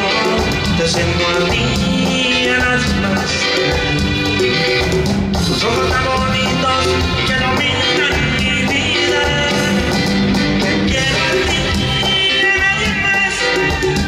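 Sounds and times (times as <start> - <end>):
person singing: 0.0 - 4.7, 5.4 - 14.0
drums: 0.0 - 14.0
electric bass: 0.0 - 14.0
electric guitar: 0.0 - 14.0.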